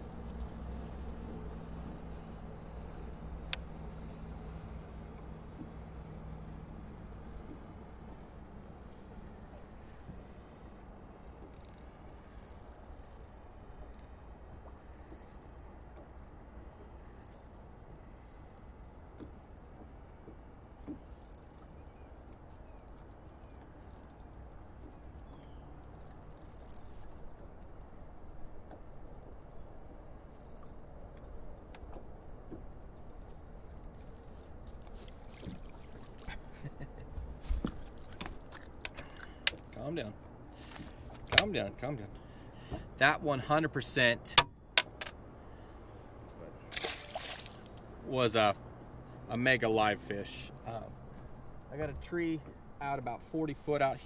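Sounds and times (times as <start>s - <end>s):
fishing reel ticking: 8.7s - 35.3s.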